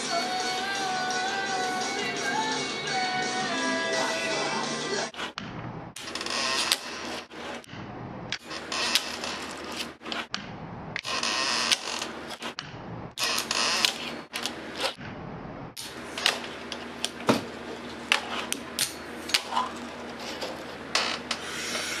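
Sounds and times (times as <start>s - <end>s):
fingerboard wheels grinding: 5.0s - 15.1s.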